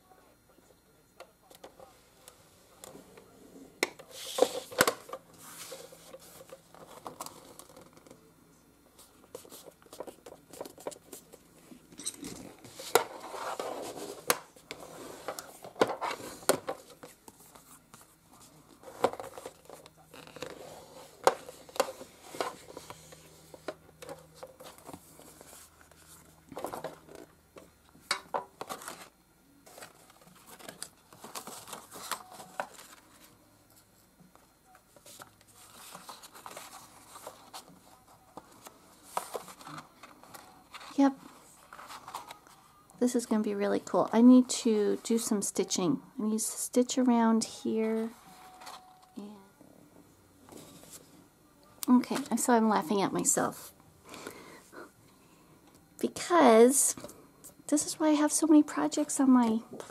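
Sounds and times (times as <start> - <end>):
paper rustling: 4.1 - 8.2, 28.6 - 33.4, 34.9 - 42.7.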